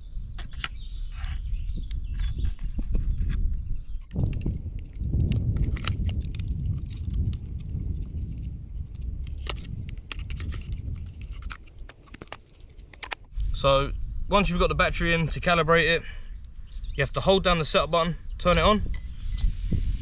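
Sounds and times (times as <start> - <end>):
battery plug clicks and rattles: 1.8 - 13.3
steady low rumble: 4.1 - 15.5.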